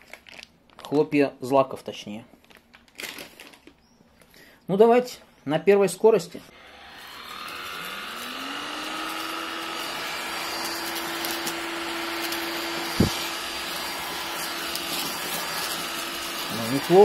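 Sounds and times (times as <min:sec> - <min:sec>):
stick vacuum cleaner hum and whine: 0:06.5 - 0:17.0.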